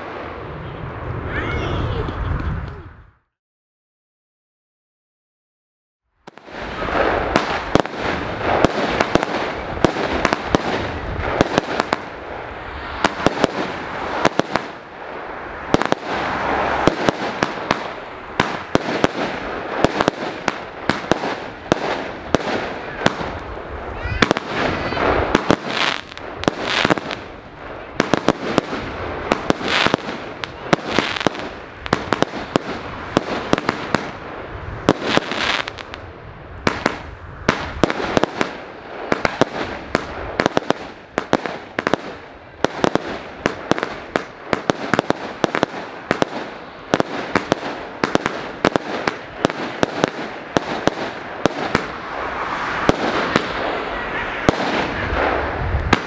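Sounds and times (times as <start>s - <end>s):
fireworks bangs and pops: 6.2s - 56.0s.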